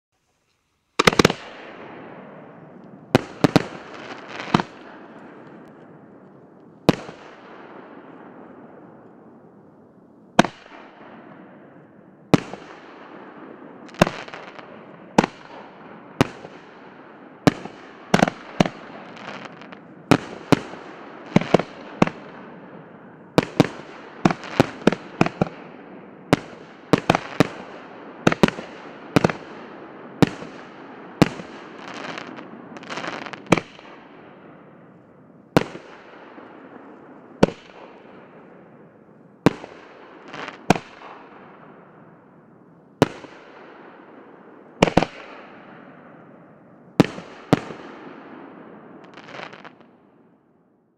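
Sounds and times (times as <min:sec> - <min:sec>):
fireworks sizzling: 0:00.2 - 0:01.6, 0:02.8 - 0:04.8, 0:17.5 - 0:21.8
fireworks bangs: 0:01.0 - 0:09.7, 0:10.3 - 0:50.2.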